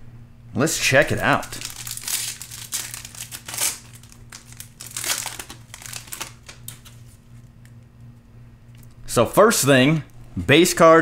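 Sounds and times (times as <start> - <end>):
foil wrapper crinkling: 1.0 - 7.7.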